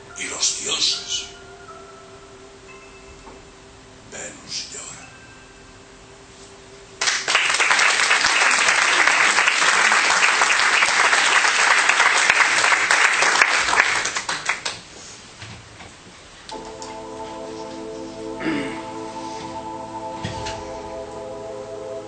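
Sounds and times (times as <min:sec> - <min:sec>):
audience applauding: 0:07.0 - 0:14.9.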